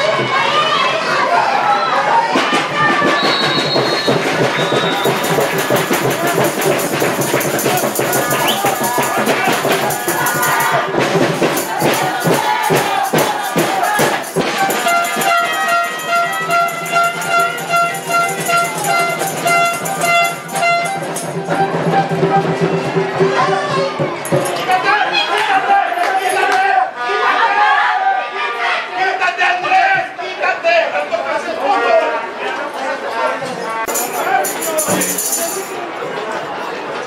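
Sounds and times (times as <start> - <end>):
shaken and struck percussion: 2.2 - 25.0, 33.8 - 35.9.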